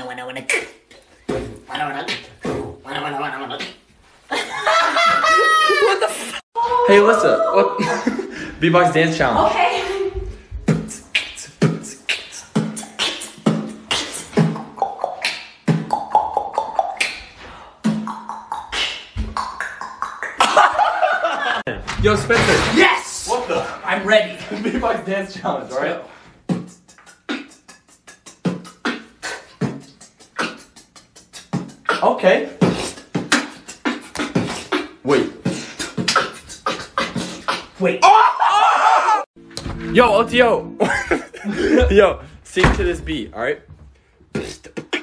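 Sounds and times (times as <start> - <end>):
mouth beatboxing: 0.0 - 3.9, 10.5 - 20.4, 26.4 - 37.9, 44.3 - 45.0.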